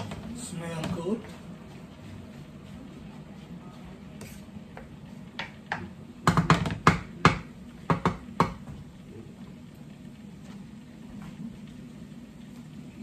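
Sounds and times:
wooden spatula knocking on wok: 4.7 - 8.9.

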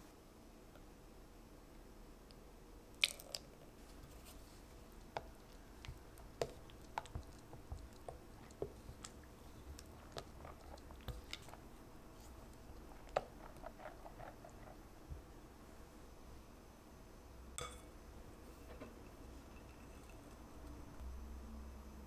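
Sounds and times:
wet squelching of batter: 3.0 - 15.3.

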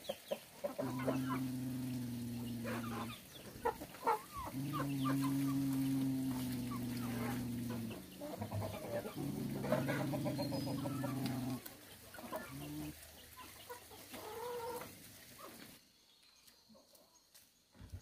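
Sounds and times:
chickens clucking: 0.0 - 15.8
steady low drone: 0.8 - 3.2, 4.4 - 11.6.

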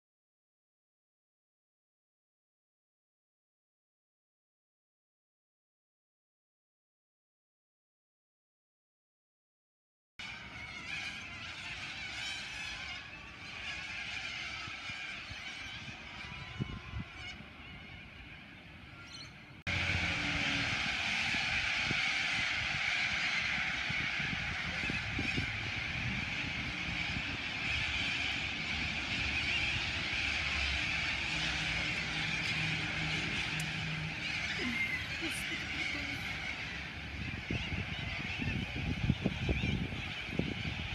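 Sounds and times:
flock of corellas calling: 10.2 - 40.9.

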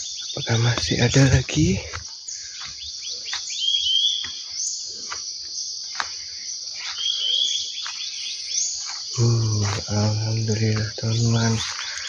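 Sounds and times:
bird chirping: 0.0 - 12.0
insects chirring: 0.0 - 12.0
footsteps crunching through leaves: 5.9 - 12.0.

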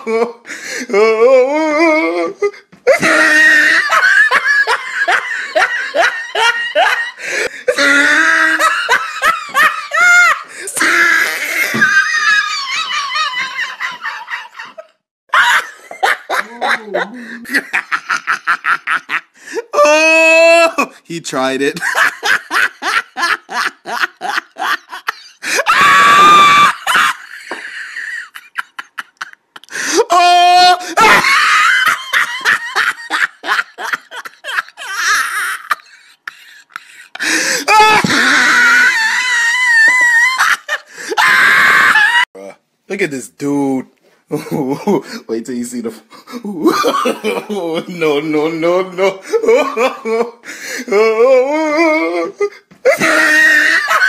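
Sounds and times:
high-pitched hysterical laughter: 2.9 - 20.9, 21.8 - 42.3, 51.4 - 54.0.

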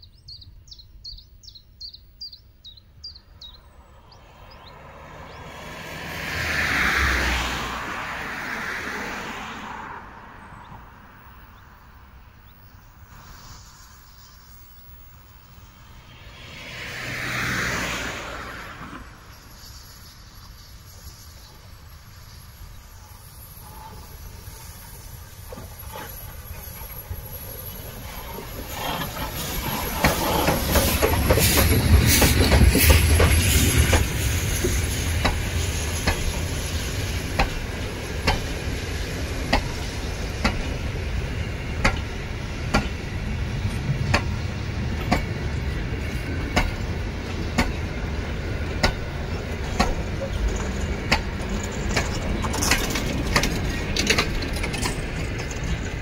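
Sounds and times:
steam locomotive passing: 2.6 - 56.0
wheels clicking over rail joints: 20.4 - 56.0.

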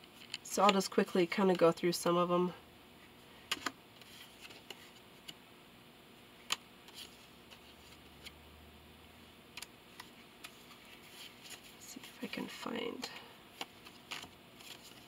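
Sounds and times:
cards clicking and tapping: 3.5 - 3.8, 13.6 - 15.0.

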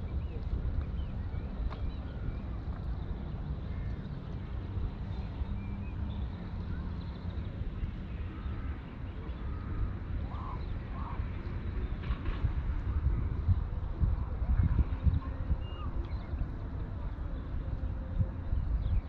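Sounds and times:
wind rumble on microphone: 0.0 - 19.0.

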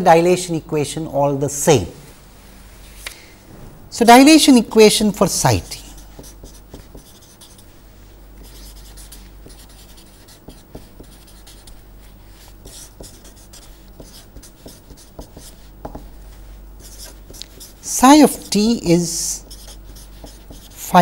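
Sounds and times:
steady low hum: 0.0 - 21.0
marker pen scratching on paper: 5.9 - 7.8, 8.4 - 21.0.

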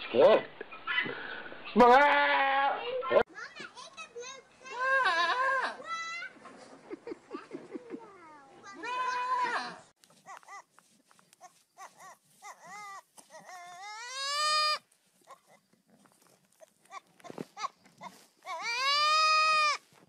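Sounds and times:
young goat bleating: 1.8 - 2.8, 4.7 - 5.8, 8.7 - 10.7, 11.4 - 15.6, 16.6 - 20.0.

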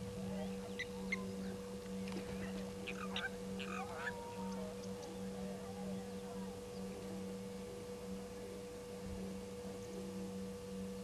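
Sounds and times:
steady electrical hum: 0.0 - 11.0
faint bird calls: 0.3 - 7.0.

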